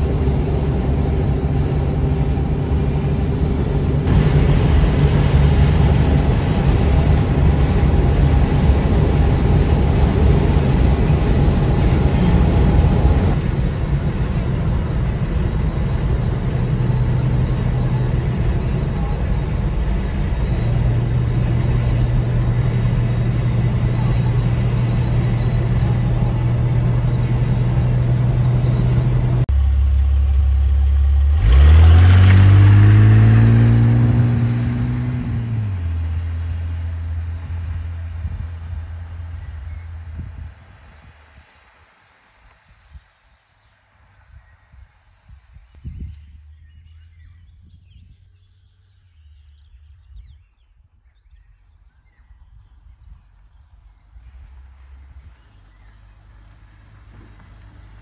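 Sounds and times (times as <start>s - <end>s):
car engine idling: 0.0s - 40.3s
car engine hum from cabin: 0.0s - 40.5s, 53.6s - 58.0s
low rumble: 0.0s - 41.7s, 44.0s - 58.0s
car accelerating hard: 14.4s - 39.8s
songbirds chirping: 16.4s - 33.7s, 34.4s - 40.5s, 42.1s - 58.0s.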